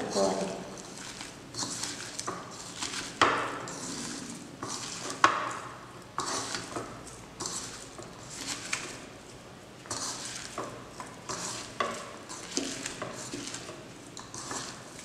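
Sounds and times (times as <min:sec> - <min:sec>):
wet rustling and crunching onions: 0:00.1 - 0:05.2, 0:10.0 - 0:15.0.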